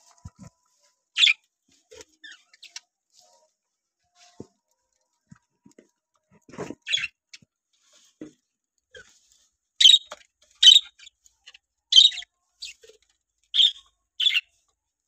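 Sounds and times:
budgerigars chirping: 9.8s - 11.1s, 11.9s - 12.2s, 13.6s - 14.4s.

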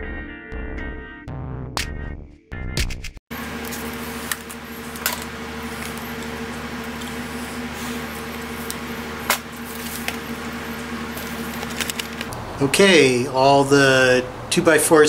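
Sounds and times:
electrical hum: 3.3s - 15.0s
plastic goggles clicking and rustling: 11.2s - 12.3s.

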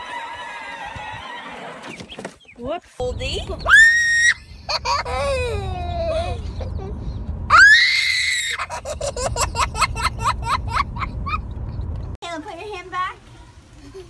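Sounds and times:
girl laughing: 3.5s - 7.1s, 8.3s - 11.5s
girl shrieking: 3.7s - 4.4s, 7.5s - 8.7s.

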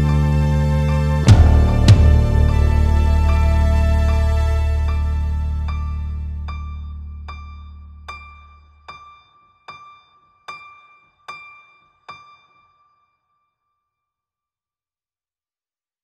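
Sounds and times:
deep bass note: 0.0s - 8.1s
repeated high note: 1.3s - 6.2s.

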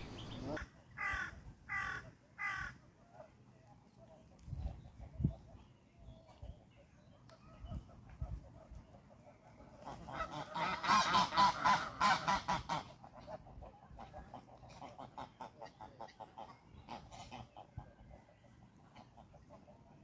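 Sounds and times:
geese honking: 9.6s - 17.7s.

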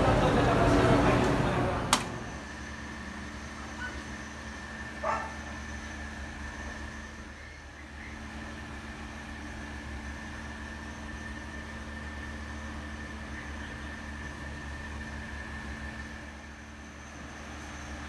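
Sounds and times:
low machine hum: 0.0s - 18.0s
dog bark: 5.0s - 5.5s.

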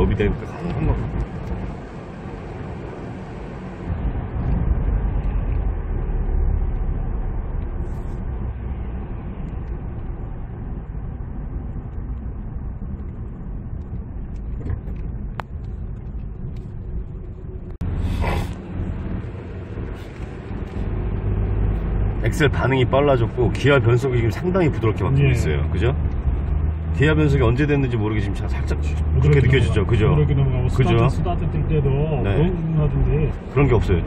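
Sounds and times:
engine and tyre rumble: 0.0s - 34.0s.

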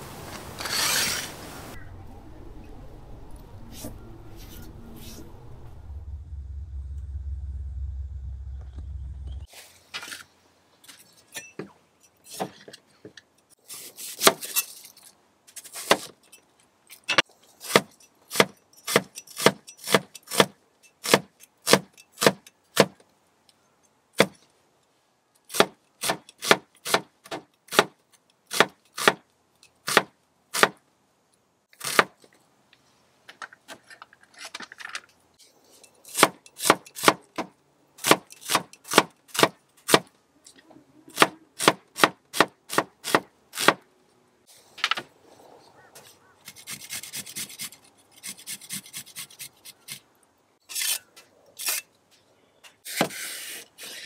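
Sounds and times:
knife scraping and slicing: 0.6s - 1.4s, 50.7s - 51.9s.

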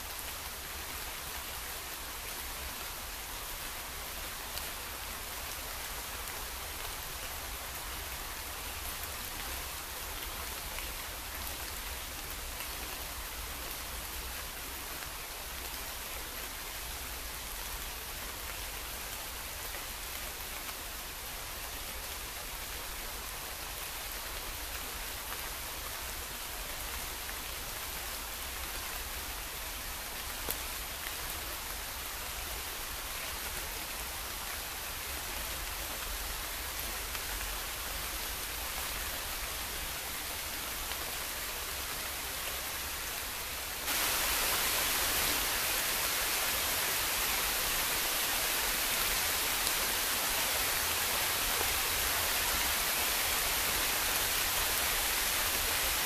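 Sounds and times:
heavy rain hissing: 30.8s - 56.0s.

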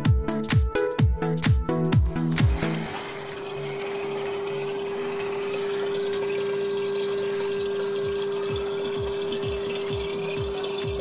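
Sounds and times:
electric fuel pump humming: 2.1s - 11.0s
fuel running into a can: 2.4s - 11.0s.

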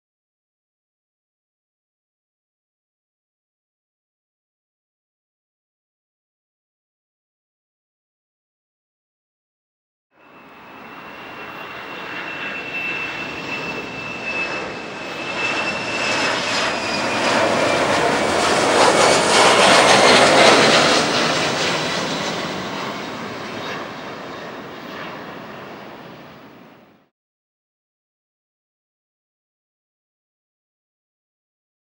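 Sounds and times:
jet passing by with fan whine: 10.2s - 27.1s.

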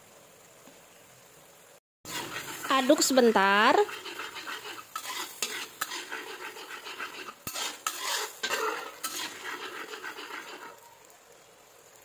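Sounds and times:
sauce bubbling and sizzling: 0.1s - 12.0s
spatula scraping a wok: 2.1s - 11.1s.

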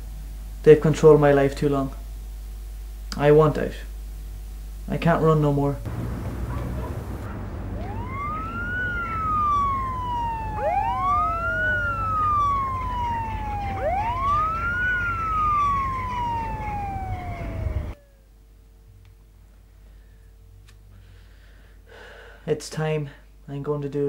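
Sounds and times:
low rumble: 5.9s - 14.5s
siren wailing: 5.9s - 18.4s.

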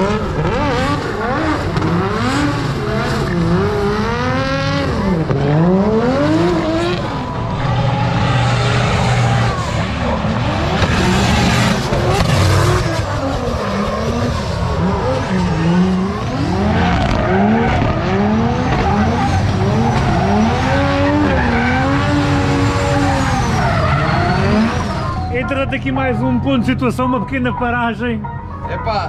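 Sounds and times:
car engines revving: 0.0s - 28.7s
tyres skidding and squealing: 0.0s - 29.0s.

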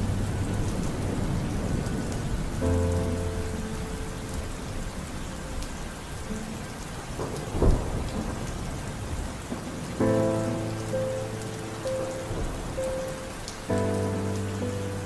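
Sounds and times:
loud thunderclap: 0.0s - 3.0s, 7.2s - 10.5s
low held musical tone: 0.0s - 6.8s
steady rain: 0.0s - 15.0s.

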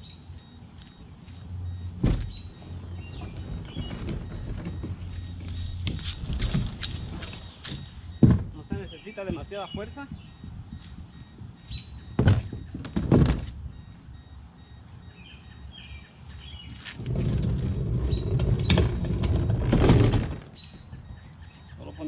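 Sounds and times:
kayak hull scraping over pavement: 2.3s - 7.6s, 16.6s - 20.7s.

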